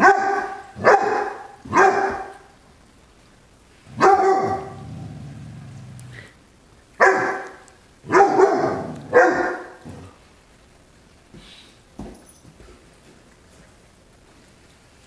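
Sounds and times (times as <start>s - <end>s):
puppy barking: 0.0s - 2.5s, 3.9s - 4.9s, 7.0s - 10.1s
dog growling low: 4.6s - 6.4s.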